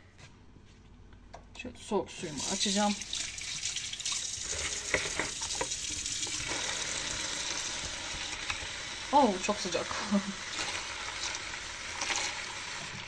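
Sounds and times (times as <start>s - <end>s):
tap water running into bowl: 2.4s - 9.2s.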